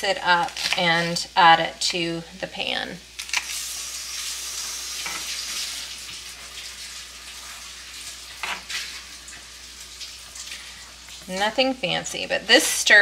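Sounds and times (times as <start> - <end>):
vegetables sizzling in a frying pan: 3.0 - 13.0.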